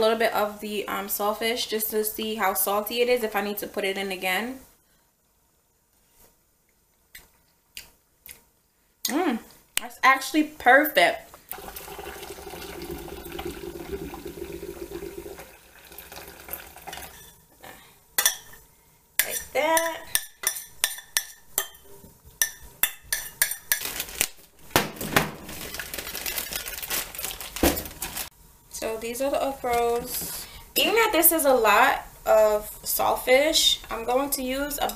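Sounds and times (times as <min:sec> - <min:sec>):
water pouring into metal sink: 0:11.5 - 0:17.2
utensil scraping metal pot: 0:15.8 - 0:17.4, 0:19.2 - 0:21.8.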